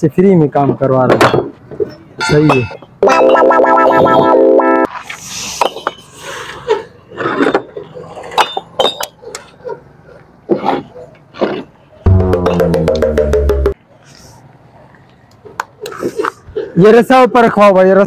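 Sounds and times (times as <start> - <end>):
music: 12.1 - 13.8.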